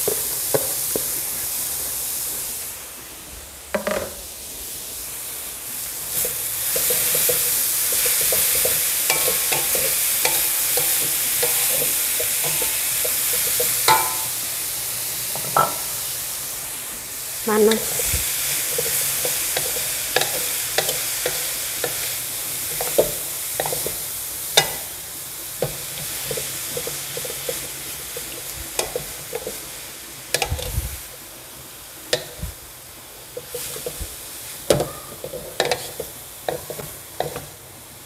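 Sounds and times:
food sizzling in hot oil: 0.0s - 38.0s
utensil scraping and knocking pan: 6.2s - 14.4s, 15.3s - 15.9s, 33.4s - 34.1s, 34.7s - 37.5s.

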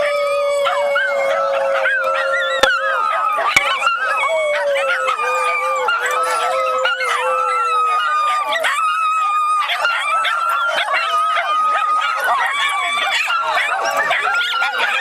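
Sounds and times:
dogs howling: 0.0s - 2.5s, 4.3s - 15.0s.

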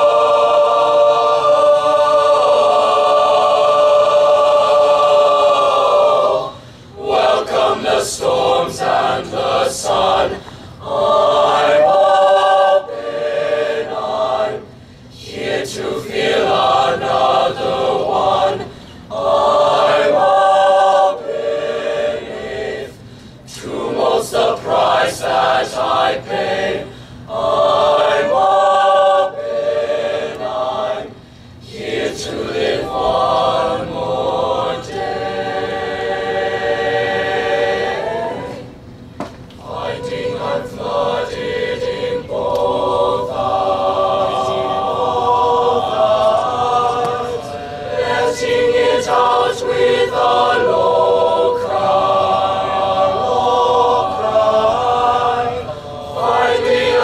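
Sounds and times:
choir singing a cappella: 0.0s - 57.0s.

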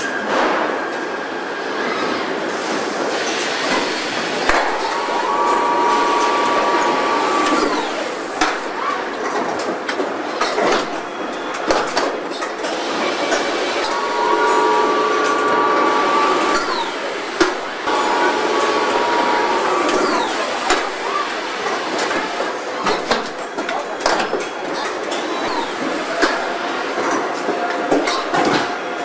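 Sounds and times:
machinery din: 3.6s - 8.8s, 13.0s - 21.3s
electric drives whining: 4.4s - 8.7s, 13.8s - 21.2s.

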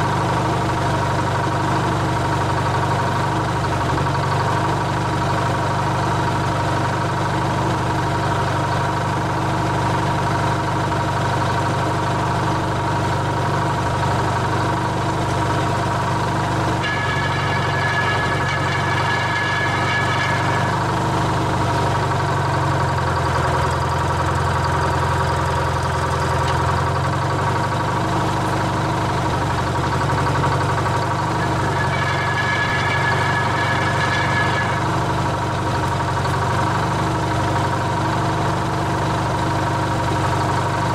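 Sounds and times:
crane engine idling: 0.0s - 40.9s
high-pitched whine: 16.7s - 21.9s, 30.5s - 36.0s.

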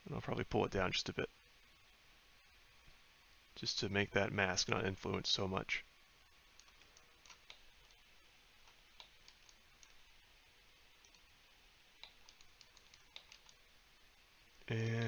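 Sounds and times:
faint computer mouse clicks: 6.6s - 8.0s, 8.6s - 10.0s, 11.0s - 11.2s, 12.0s - 13.6s.

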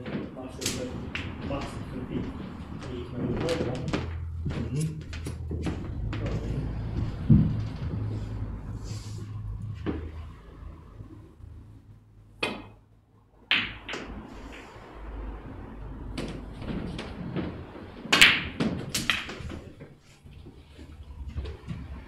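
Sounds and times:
snooker balls clicking: 0.0s - 8.5s, 13.5s - 22.0s
low steady hum: 0.0s - 22.0s.

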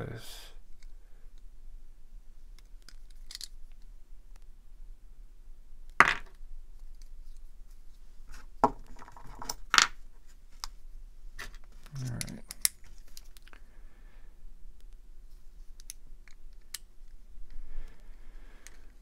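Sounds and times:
small metal clicks: 2.6s - 3.9s, 11.5s - 13.6s.

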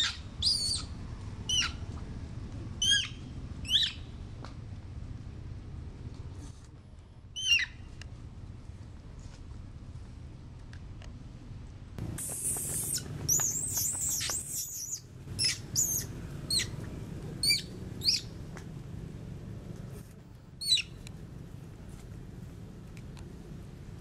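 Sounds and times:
macaque screaming: 12.4s - 16.8s.

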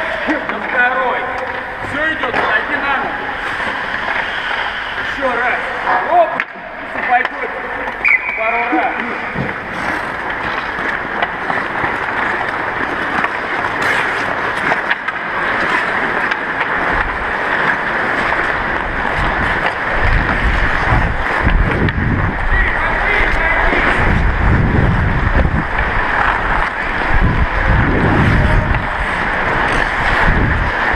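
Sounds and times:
ice skate blades scraping ice: 1.8s - 6.3s, 6.9s - 30.9s
wind buffeting microphone: 18.6s - 30.9s.

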